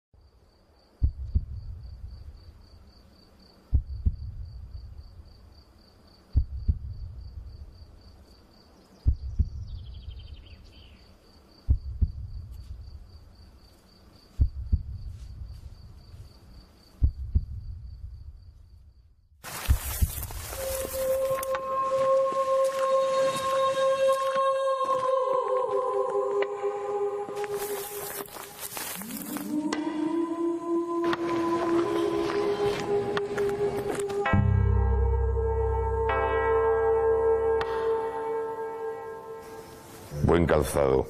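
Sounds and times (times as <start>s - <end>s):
high pulsing cricket-like chirp: 0.2s - 31.1s, 33.6s - 41.0s
deep double thumps: 0.9s - 2.6s, 3.7s - 5.4s, 6.3s - 7.9s, 9.0s - 10.2s, 11.6s - 13.1s, 14.4s - 16.0s, 16.9s - 20.5s.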